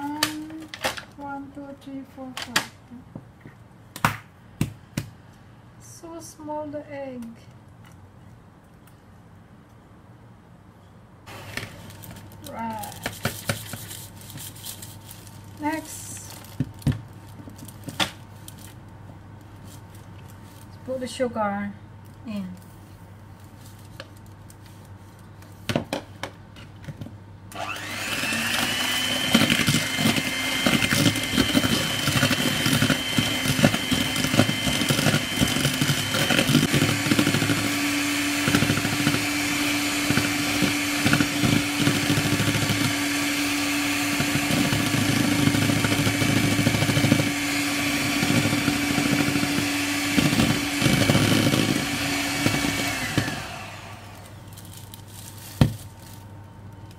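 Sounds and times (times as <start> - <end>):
electric hand mixer running: 27.5 - 54.4.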